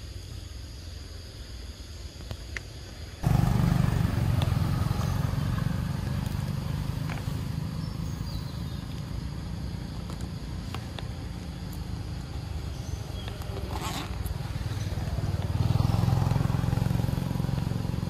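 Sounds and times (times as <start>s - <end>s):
faint insect hiss: 0.0s - 18.0s
motorbike engine passing: 3.2s - 10.6s, 11.4s - 18.0s.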